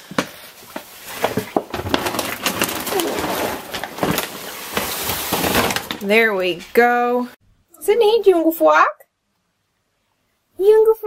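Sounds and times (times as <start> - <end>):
plastic bag rustling: 0.4 - 7.0
bag dragged across wooden floor: 0.6 - 6.2.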